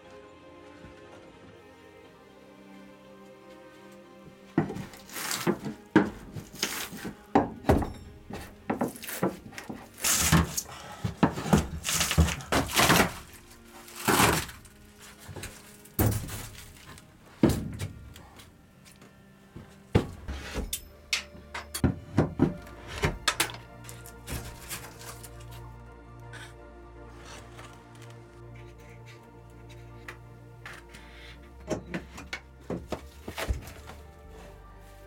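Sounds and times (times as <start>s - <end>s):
boards being pried loose: 4.6s - 14.7s.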